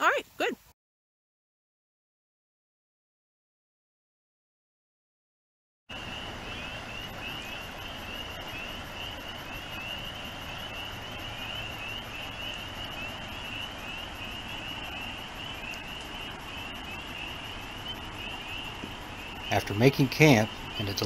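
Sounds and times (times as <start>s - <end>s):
frogs peeping in chorus: 5.9s - 21.0s.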